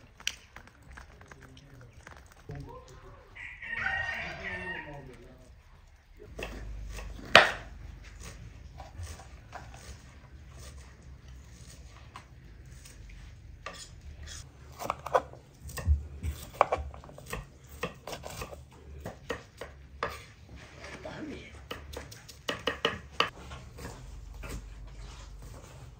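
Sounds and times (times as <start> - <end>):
knife chopping on cutting board: 6.3 - 10.0, 14.7 - 20.3, 21.6 - 25.9.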